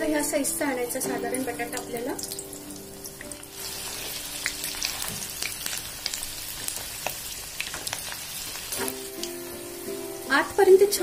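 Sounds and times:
potatoes sizzling in hot oil: 0.0 - 11.0
oil crackling and popping: 1.7 - 9.4.

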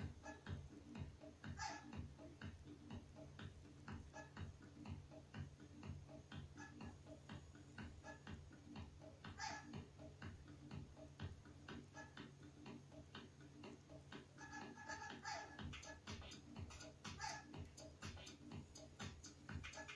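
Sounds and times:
background music with ticking beat: 0.0 - 19.9.

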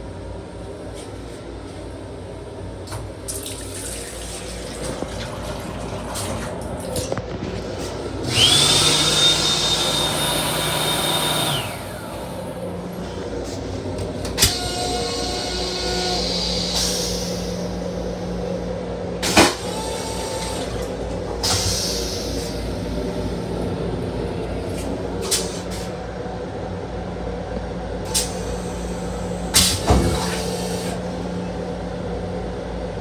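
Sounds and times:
toilet flushing with whine: 2.8 - 26.1, 27.9 - 32.0
steady low rumble: 11.9 - 14.4, 20.9 - 29.5.

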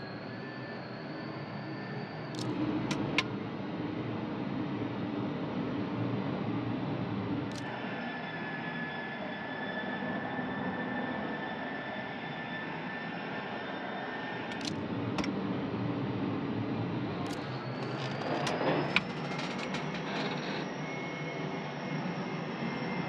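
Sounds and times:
jet engine whine and roar: 0.0 - 23.0
whine rising in pitch: 11.1 - 23.0
sharp clicks: 14.5 - 15.3.

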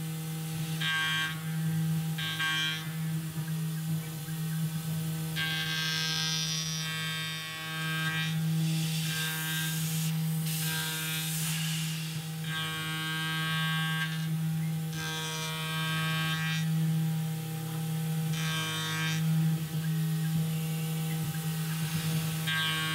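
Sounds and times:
cutter whining and rattling: 0.0 - 22.9
mill machine humming: 0.0 - 22.9
hiss: 8.6 - 12.4, 21.5 - 22.5.

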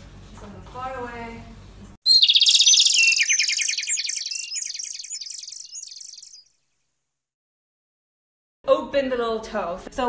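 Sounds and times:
bird chirping and trilling: 2.0 - 6.6.

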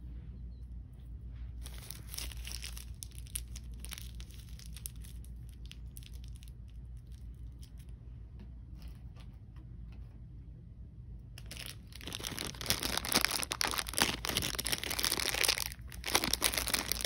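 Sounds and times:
steady low hum: 0.0 - 17.0
packaging crinkling and tearing: 1.6 - 7.8, 11.4 - 17.0.

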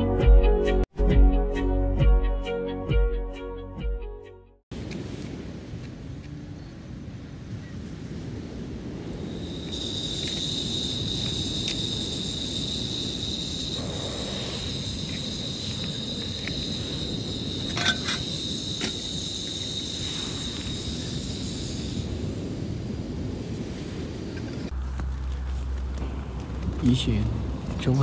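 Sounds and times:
camping stove gas hiss: 4.7 - 27.2
insects trilling: 8.8 - 24.8
metal pot clinking: 17.7 - 18.3.

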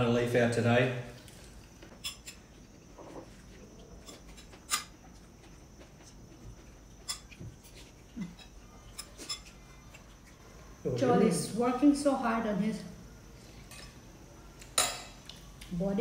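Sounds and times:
soft eating mouth sounds: 1.2 - 10.8.

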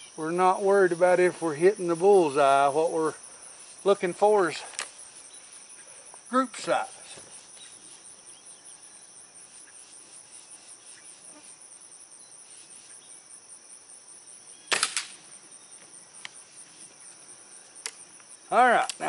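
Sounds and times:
crickets chirping: 0.0 - 19.0
air rifle shot: 14.7 - 15.2.

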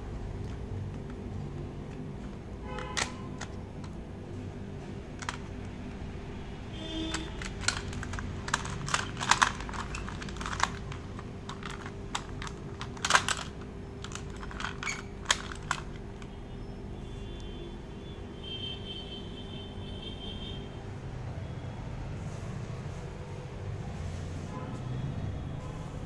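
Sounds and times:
plastic toy clicks and snaps: 2.7 - 4.0, 5.2 - 5.5, 7.1 - 16.3.

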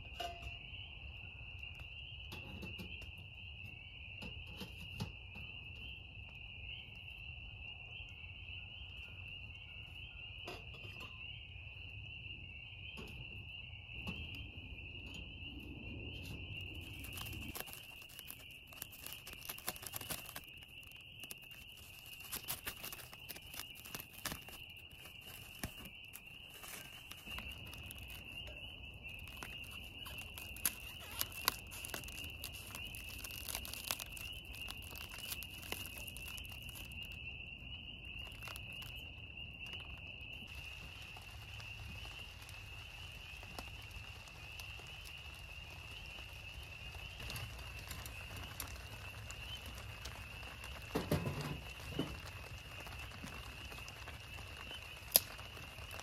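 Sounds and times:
high insect trill: 13.5 - 56.0
raindrops tapping on plastic: 16.7 - 37.5, 38.1 - 56.0.

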